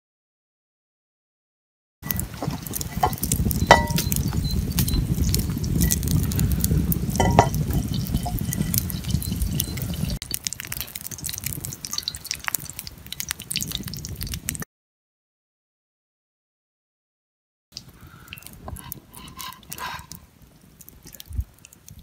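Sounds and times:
campfire crackling: 2.0 - 14.6, 17.8 - 22.0
oil heating in frying pan: 2.0 - 14.6
metallic rings from pan: 3.0 - 4.2, 7.2 - 8.4.

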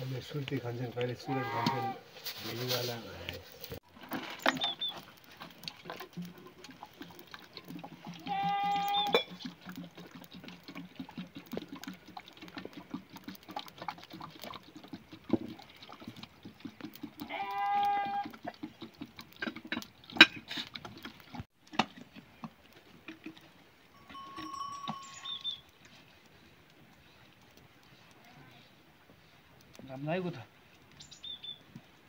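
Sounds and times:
sheep bleating: 1.2 - 2.0, 8.2 - 9.2, 17.2 - 18.3.

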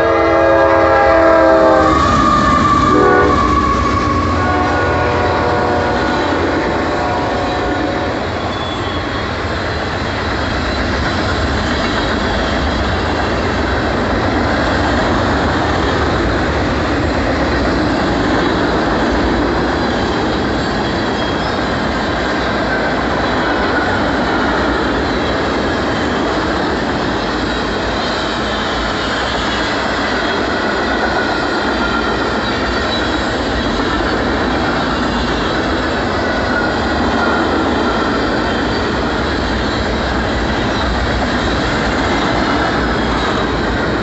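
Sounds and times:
train horn: 0.0 - 9.4
freight train wheels rumbling on rails: 0.0 - 44.0.

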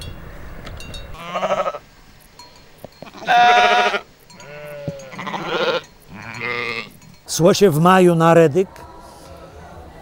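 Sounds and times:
sheep bleating: 1.2 - 1.8, 3.0 - 7.0.

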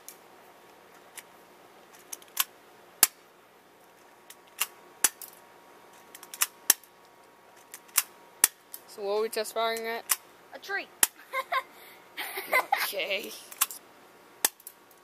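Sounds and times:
airsoft pistol shots snapping: 14.4 - 14.7.

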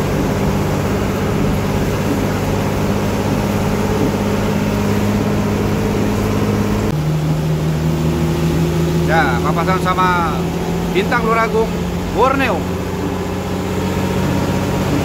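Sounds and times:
bus engine droning: 0.0 - 15.0
rain: 0.0 - 15.0
tyres hissing on wet road: 0.0 - 15.0.

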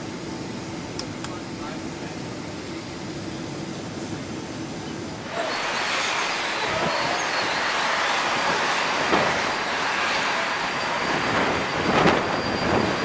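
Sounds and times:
jet engine rush: 0.0 - 13.0
high-pitched whine: 4.6 - 13.0.

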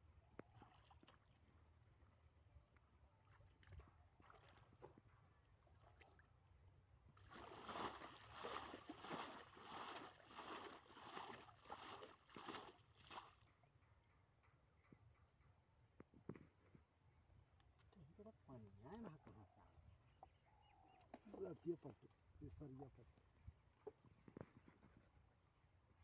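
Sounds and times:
faint water sloshing: 0.4 - 13.5
water splashing from a bowl: 7.2 - 13.3.

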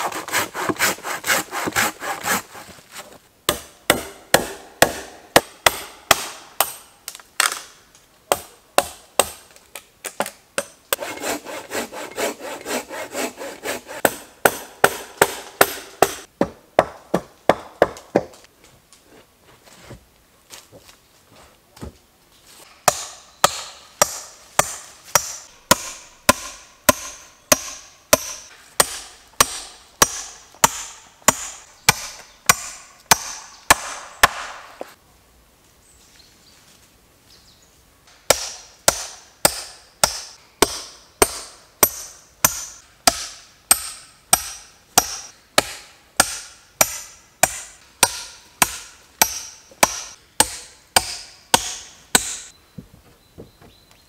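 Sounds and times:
axe chopping wood: 3.5 - 6.8, 8.3 - 9.4, 14.0 - 18.4, 22.8 - 35.0, 38.3 - 52.5.

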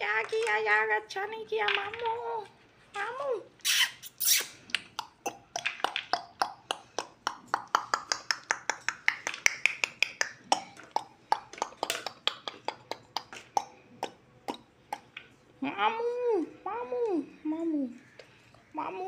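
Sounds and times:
parrot clicking and chirping: 3.6 - 15.3.

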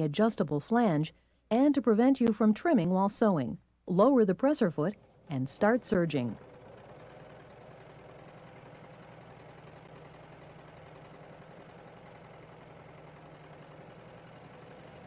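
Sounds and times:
serger sewing machine humming: 4.8 - 15.0.

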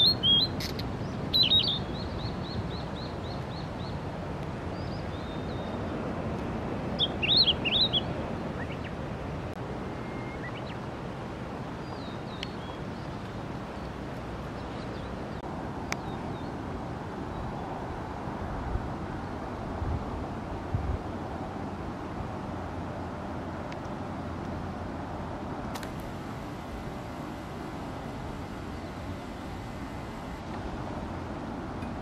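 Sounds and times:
bird singing high clear notes: 0.0 - 2.6, 7.0 - 8.9, 9.9 - 10.8
low background noise: 0.0 - 32.0.

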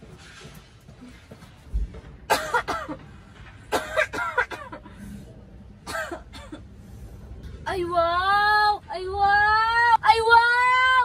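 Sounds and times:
woman coughing: 2.3 - 3.0, 3.7 - 4.9, 5.8 - 6.6.

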